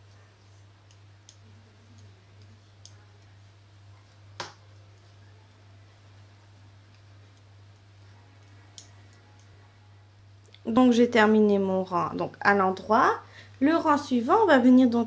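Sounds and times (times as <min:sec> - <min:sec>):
steady low hum: 0:00.0 - 0:15.0
knitting needles clicking: 0:00.8 - 0:03.0, 0:08.7 - 0:09.5.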